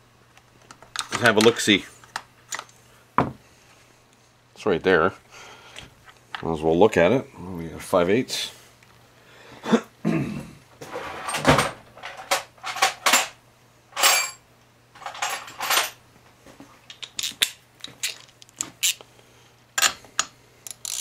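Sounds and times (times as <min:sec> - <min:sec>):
metal tools clinking and rattling: 0:14.0 - 0:14.4, 0:15.0 - 0:16.0.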